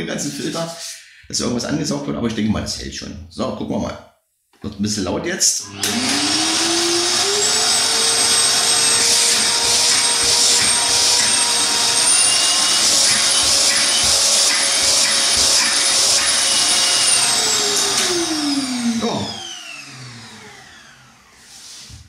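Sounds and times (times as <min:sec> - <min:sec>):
vacuum cleaner suction whine: 0:05.6 - 0:22.0.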